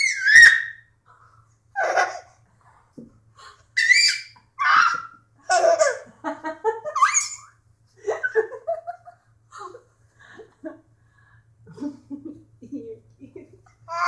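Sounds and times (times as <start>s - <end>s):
baby giggling: 1.8s - 2.4s, 4.1s - 6.1s.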